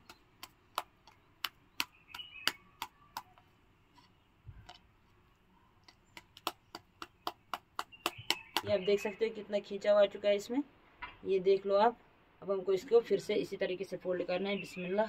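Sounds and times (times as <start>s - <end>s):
sticky clicks of dough being folded: 0.0s - 8.7s.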